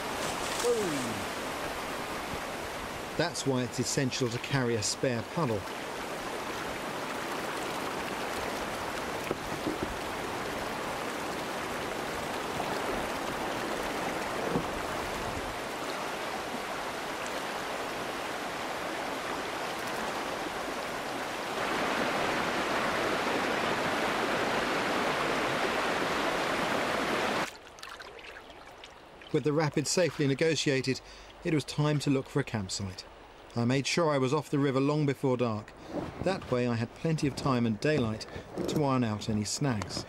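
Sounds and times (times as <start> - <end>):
river rapid rushing: 0.0 - 29.2.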